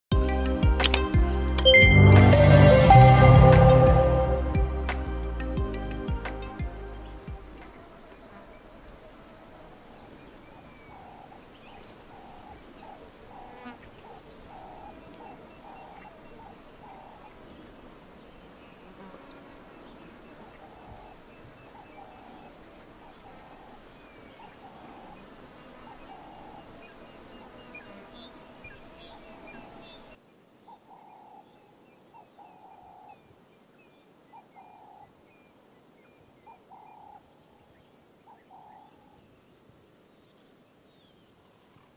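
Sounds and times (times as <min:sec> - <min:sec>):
crickets trilling: 0:04.3 - 0:30.2.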